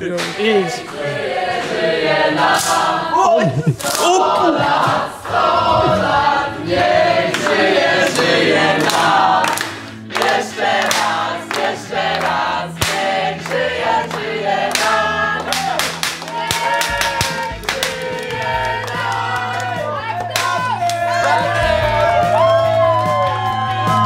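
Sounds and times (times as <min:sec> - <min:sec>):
group singing in chorus: 0:00.1 - 0:22.6
hands clapping: 0:03.8 - 0:05.1, 0:07.3 - 0:21.5.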